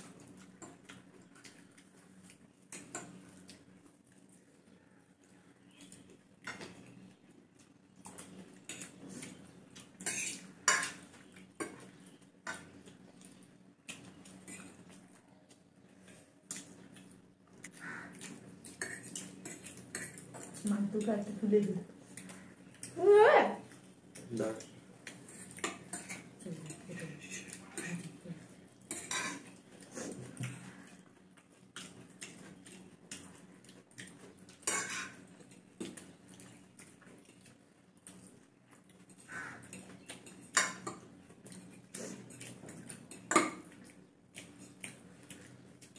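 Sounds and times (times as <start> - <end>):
forks clinking on plates: 10.0 - 11.0, 28.9 - 29.5, 43.1 - 43.7.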